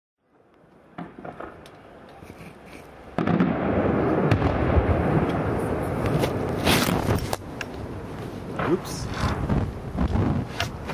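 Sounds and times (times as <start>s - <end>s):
dense firework crackling: 2.9s - 10.9s
sharp firework bang: 3.2s - 5.5s.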